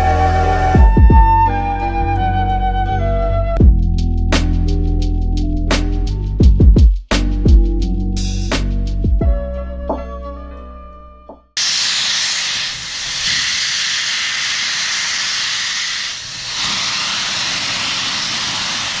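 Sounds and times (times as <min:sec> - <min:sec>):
steam locomotive hissing steam: 0:00.0 - 0:00.8, 0:11.6 - 0:19.0
music outro: 0:00.0 - 0:10.7.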